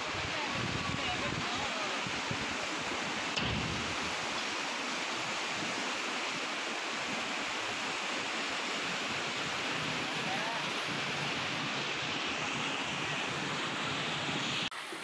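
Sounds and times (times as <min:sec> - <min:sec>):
river rushing: 0:00.0 - 0:15.0
short knock: 0:03.4 - 0:04.0.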